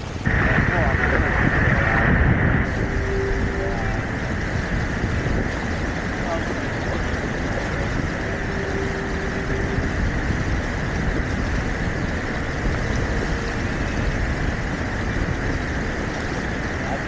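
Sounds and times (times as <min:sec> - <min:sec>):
water rushing: 0:00.0 - 0:17.0
wind buffeting microphone: 0:00.0 - 0:17.0.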